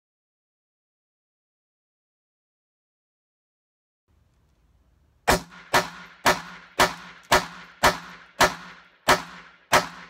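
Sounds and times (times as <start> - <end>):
pistol shots with ringing echo: 5.2 - 10.0.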